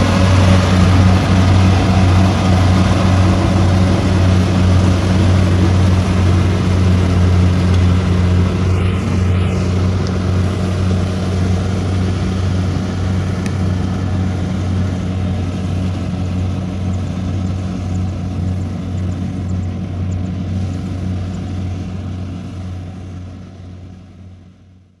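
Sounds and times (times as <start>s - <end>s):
diesel engine humming: 0.0s - 25.0s.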